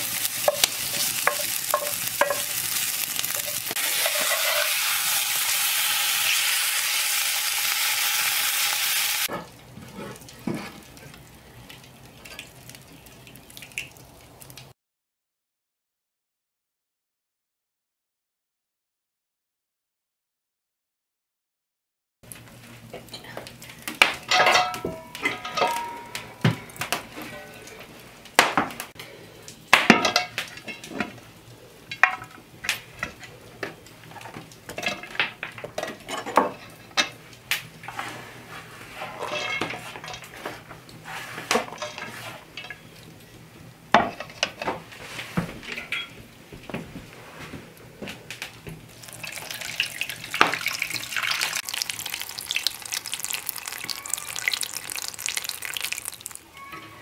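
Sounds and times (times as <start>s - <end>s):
cookware knocking and clinking: 0.5s - 2.5s, 24.3s - 26.7s.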